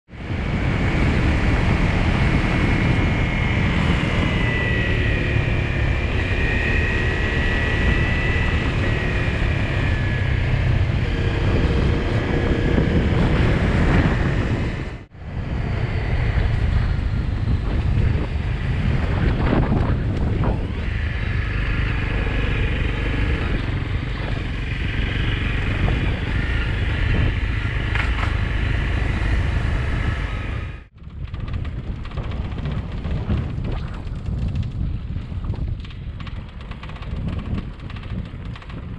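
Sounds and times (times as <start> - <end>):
vehicle engine running: 0.1 - 38.9
wind rushing over microphone: 0.1 - 38.9.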